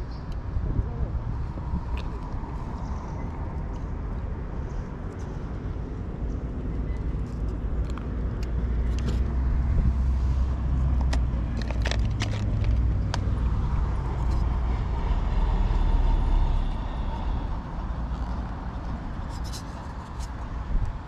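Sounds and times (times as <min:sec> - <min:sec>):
wind on microphone: 0:00.0 - 0:03.7, 0:09.1 - 0:10.9
road traffic rumble: 0:00.0 - 0:21.0.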